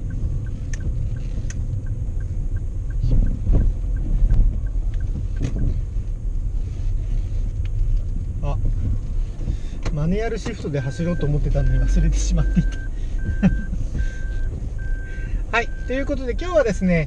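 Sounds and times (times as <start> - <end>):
engine and tyre rumble: 0.0 - 17.0
turn signal ticking: 0.0 - 17.0
heavy low thuds: 1.7 - 6.6, 7.4 - 12.1.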